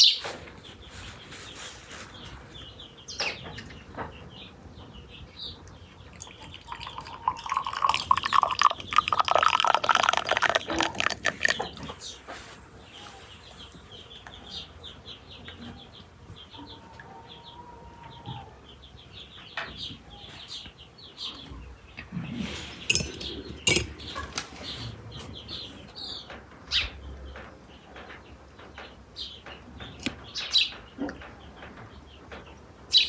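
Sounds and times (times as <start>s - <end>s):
small birds chirping: 0.0s - 33.0s
tea glasses and dishes clinking: 6.3s - 11.6s, 22.9s - 24.1s.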